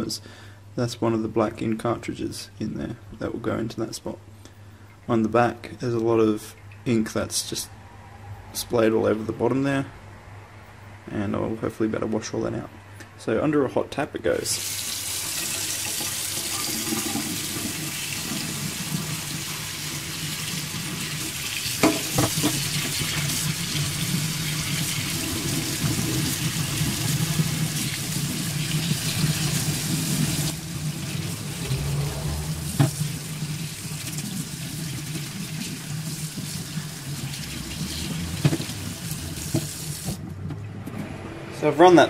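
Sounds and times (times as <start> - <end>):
tap water splashing into sink: 14.8 - 26.1, 32.7 - 40.2.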